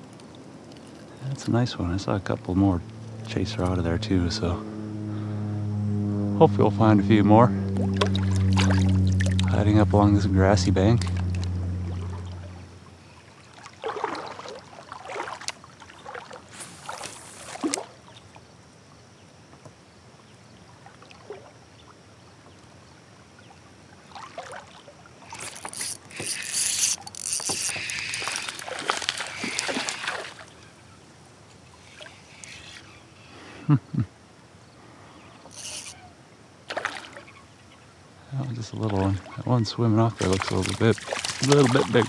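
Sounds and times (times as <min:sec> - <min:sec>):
flowing river water: 0:00.0 - 0:04.6, 0:07.7 - 0:42.0
person wading splashing water: 0:07.8 - 0:09.5, 0:11.2 - 0:18.4, 0:23.9 - 0:30.8, 0:31.6 - 0:33.1, 0:36.6 - 0:37.4, 0:38.8 - 0:42.0.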